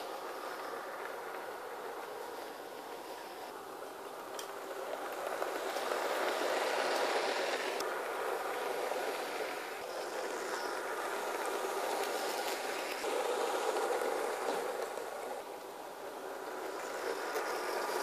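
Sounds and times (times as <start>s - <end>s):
model train motors whirring on rails: 0.0s - 18.0s.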